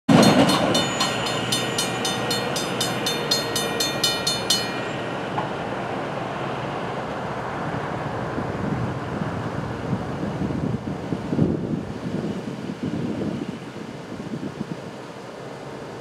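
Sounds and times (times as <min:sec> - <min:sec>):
crossing bell ringing: 0:00.1 - 0:06.2
traffic: 0:00.1 - 0:11.3
wind: 0:00.1 - 0:16.0.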